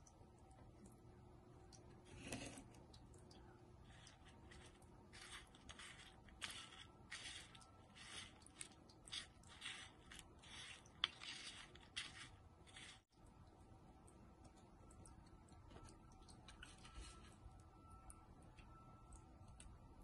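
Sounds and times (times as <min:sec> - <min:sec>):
fingertips rustling dry crumbs: 0:03.8 - 0:13.1.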